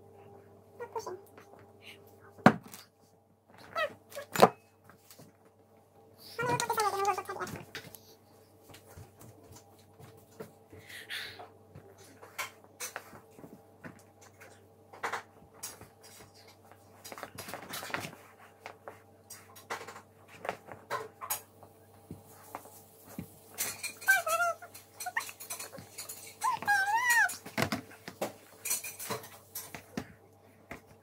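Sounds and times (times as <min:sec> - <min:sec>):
clatter of dishes and cutlery: 0:12.0 - 0:13.5, 0:14.2 - 0:18.2, 0:19.3 - 0:21.5, 0:23.1 - 0:30.0.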